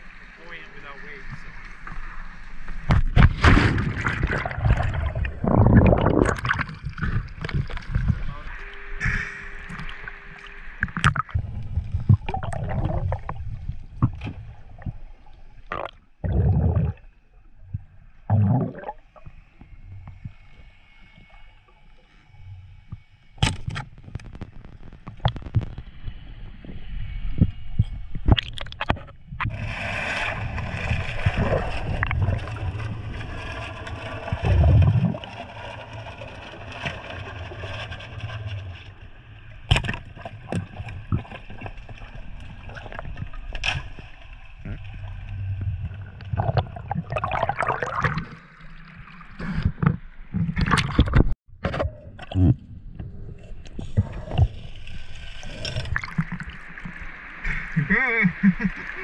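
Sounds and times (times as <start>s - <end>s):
water splashing: 1.2s - 19.5s, 28.2s - 51.4s, 53.8s - 59.0s
water gurgling underwater: 2.9s - 8.3s, 9.0s - 19.3s, 28.2s - 33.4s, 34.3s - 35.3s, 39.7s - 59.0s.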